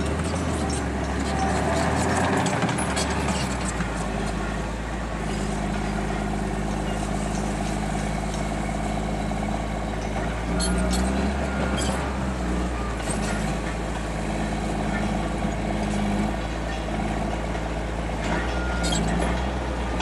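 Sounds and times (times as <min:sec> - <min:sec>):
diesel engine running under load: 0:00.0 - 0:20.0
steel tracks clanking: 0:09.7 - 0:20.0.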